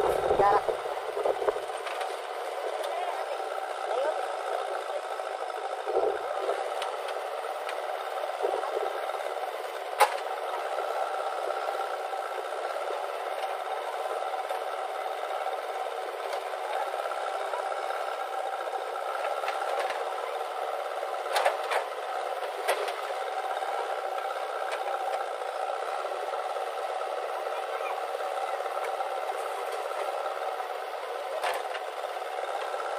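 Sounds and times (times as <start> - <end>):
diesel engine running: 0.0 - 32.9.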